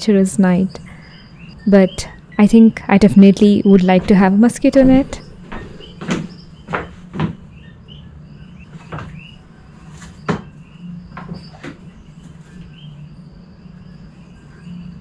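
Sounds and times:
low steady hum: 0:00.0 - 0:15.0
wooden knocks and thumps: 0:05.5 - 0:07.5, 0:10.3 - 0:11.9.

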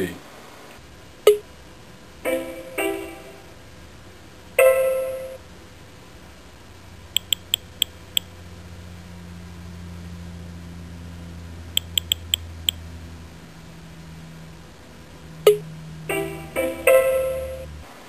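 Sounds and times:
low steady hum: 0:00.0 - 0:18.0
plucked musical notes: 0:02.3 - 0:03.4, 0:16.1 - 0:17.8
quick interface ticks: 0:07.2 - 0:08.3, 0:11.8 - 0:12.8.

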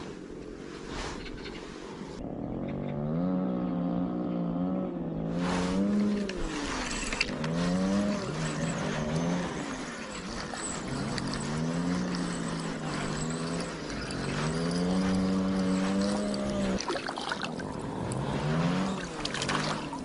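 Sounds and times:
chainsaw engine running: 0:05.7 - 0:16.8.

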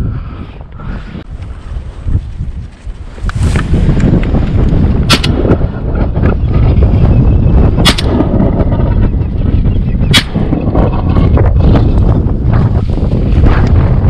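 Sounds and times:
wind buffeting microphone: 0:00.0 - 0:14.0
shotgun shots: 0:07.8 - 0:08.2.

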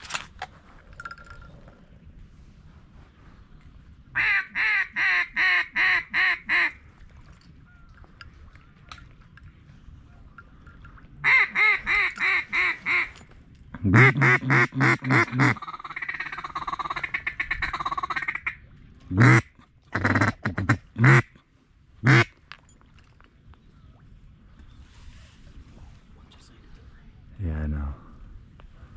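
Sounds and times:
duck call quacks: 0:04.2 - 0:06.8, 0:11.2 - 0:13.1, 0:13.9 - 0:18.6, 0:19.2 - 0:21.3, 0:22.0 - 0:22.3.

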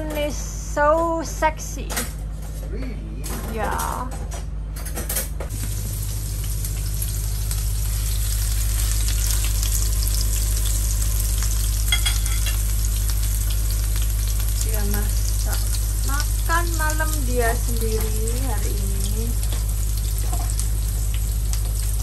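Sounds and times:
steady low hum: 0:00.0 - 0:22.0
food sizzling in a pan: 0:05.5 - 0:22.0.

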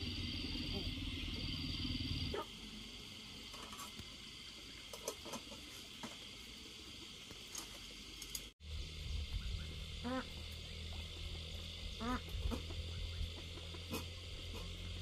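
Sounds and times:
insects buzzing: 0:00.0 - 0:15.0
caged bird call: 0:08.8 - 0:14.9.

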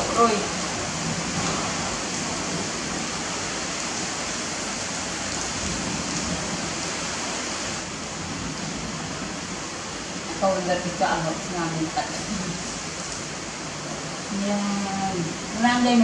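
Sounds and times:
steady rain: 0:00.0 - 0:16.0.

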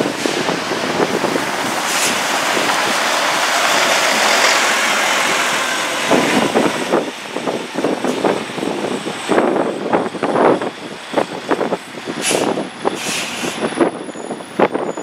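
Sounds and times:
bus driving past on snow: 0:00.0 - 0:08.7.

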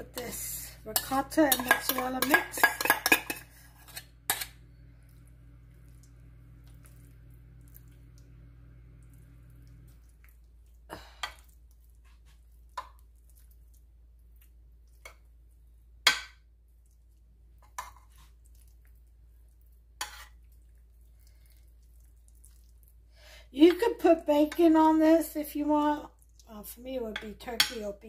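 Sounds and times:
low steady hum: 0:00.0 - 0:28.0
metal spoon clinking on ceramic dish: 0:01.0 - 0:03.4.

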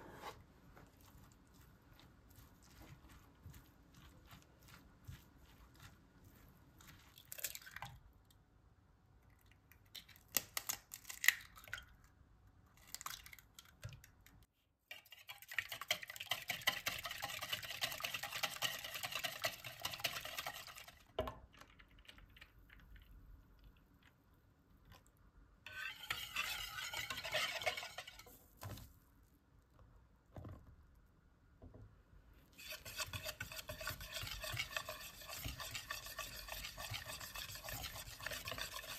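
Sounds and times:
wire whisk beating eggs: 0:14.9 - 0:21.1, 0:25.7 - 0:28.3, 0:32.6 - 0:38.9
metal spoon scraping glass bowl: 0:25.7 - 0:28.4, 0:32.6 - 0:38.9.

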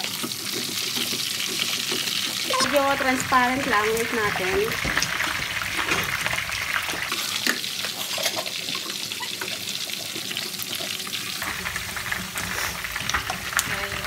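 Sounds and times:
onion sizzling in hot oil: 0:00.0 - 0:14.0
spatula scraping a pan: 0:11.4 - 0:14.0.

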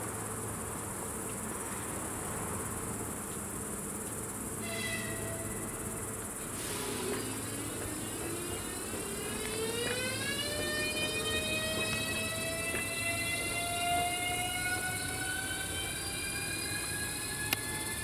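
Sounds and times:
electric train whining: 0:04.6 - 0:18.0.

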